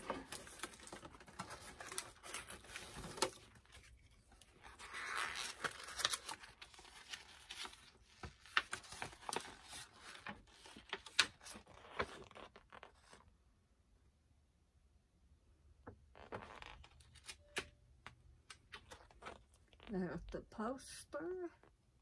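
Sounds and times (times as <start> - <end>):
cardboard packaging rustling: 0.0 - 13.2.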